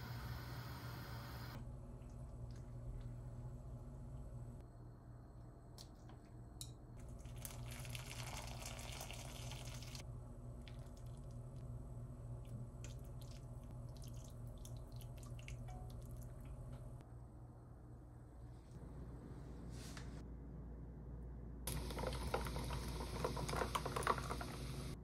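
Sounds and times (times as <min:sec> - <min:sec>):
broth pouring into bowl: 0:07.2 - 0:10.0.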